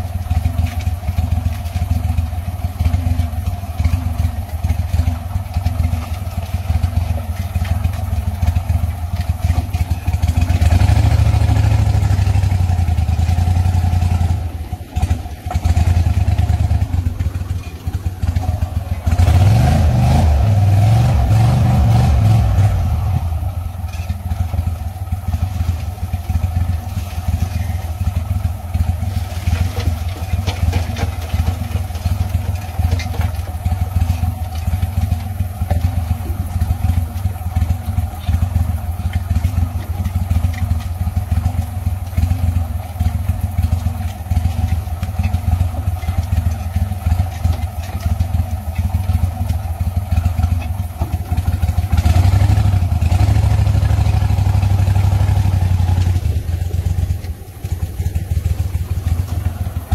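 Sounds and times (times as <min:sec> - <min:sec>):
boat motor idling and revving: 0:00.0 - 0:59.9.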